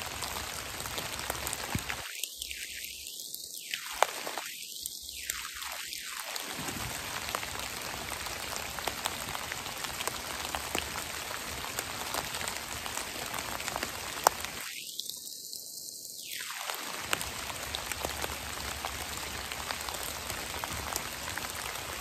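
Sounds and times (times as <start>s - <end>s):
rain pattering on leaves: 0.0s - 22.0s.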